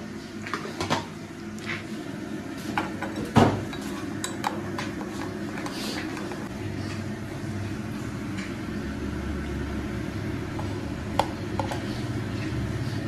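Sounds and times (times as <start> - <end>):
steady low hum: 1.2 - 13.0.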